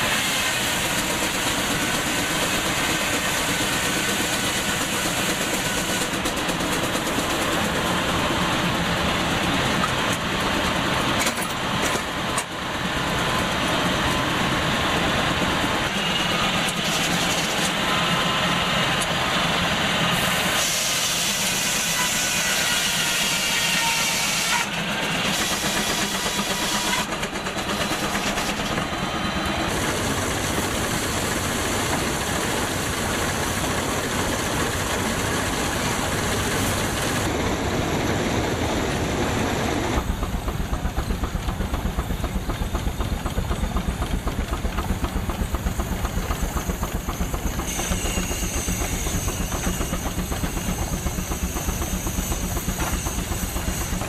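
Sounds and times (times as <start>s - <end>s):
steam machinery hissing: 0.0s - 54.0s
tractor engine running: 25.6s - 54.0s.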